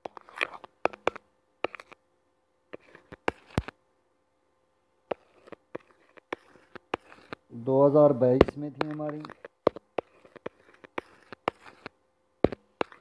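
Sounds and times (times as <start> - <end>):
scratchy rubs on touchscreen: 0.0 - 2.0, 2.7 - 3.8, 5.1 - 13.0
fingertip tapping on touchscreen: 8.4 - 13.0.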